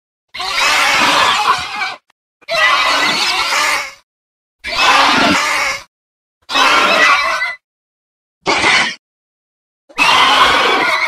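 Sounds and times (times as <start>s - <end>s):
harsh dinosaur calls: 0.3s - 4.0s, 4.6s - 7.6s, 9.9s - 11.0s.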